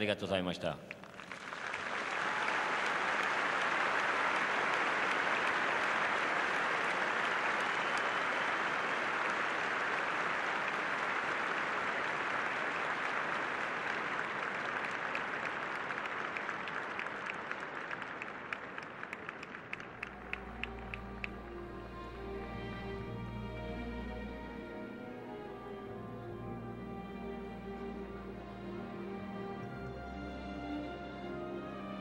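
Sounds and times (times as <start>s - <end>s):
stadium crowd applauding: 0.0s - 23.2s.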